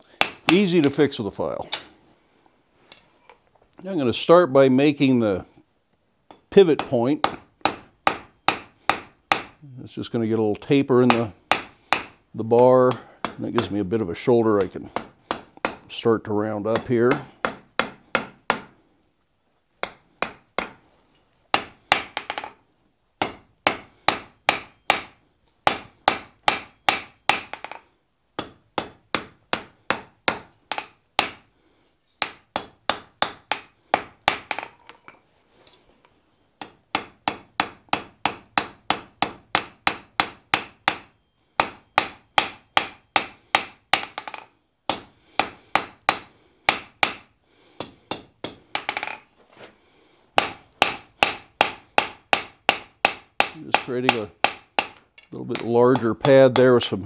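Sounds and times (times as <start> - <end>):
hammer striking steel on anvil: 0.2 - 1.0, 6.3 - 9.6, 11.1 - 12.2, 16.8 - 18.7, 21.6 - 22.6, 23.2 - 27.8, 28.4 - 31.4, 36.6 - 49.2, 50.4 - 56.7.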